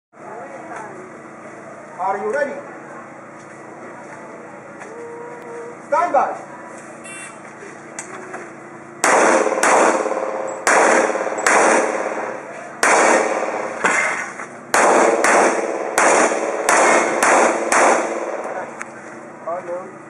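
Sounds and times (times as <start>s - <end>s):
pistol shots ringing: 9.0s - 18.7s.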